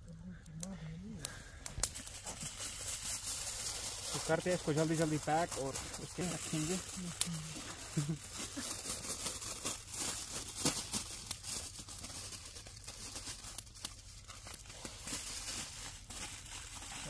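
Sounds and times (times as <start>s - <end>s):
wrapping material crinkling and tearing: 1.7s - 17.0s.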